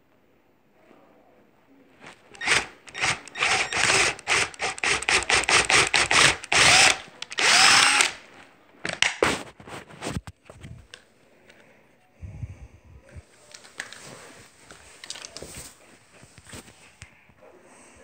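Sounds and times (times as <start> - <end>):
power drill short bursts: 2.4 - 8.2.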